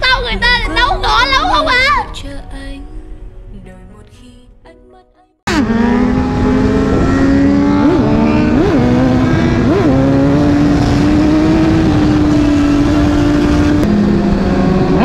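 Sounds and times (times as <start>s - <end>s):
motorcycle engine running: 5.5s - 15.0s.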